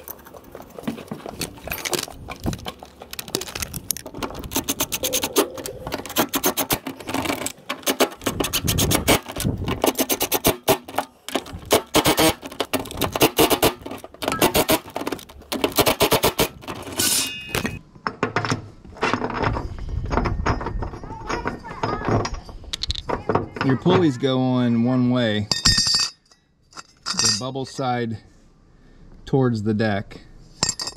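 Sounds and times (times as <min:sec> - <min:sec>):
parts being handled: 0:00.0 - 0:24.2, 0:25.4 - 0:27.9, 0:30.5 - 0:30.9.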